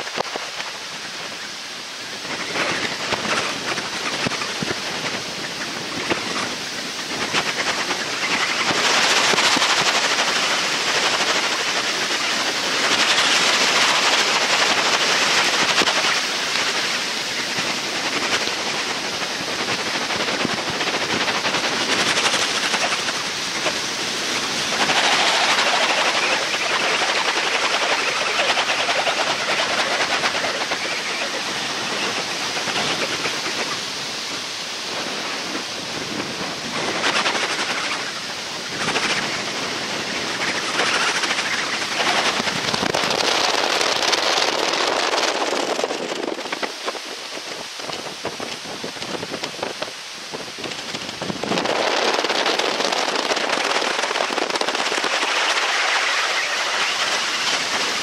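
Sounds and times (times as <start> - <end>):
floodwater rushing and churning: 0.0 - 58.0.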